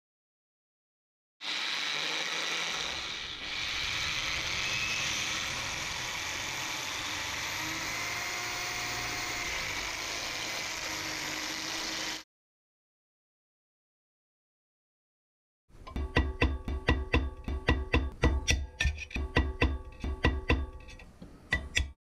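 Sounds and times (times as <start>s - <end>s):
electric drill cutting metal: 1.4s - 12.3s.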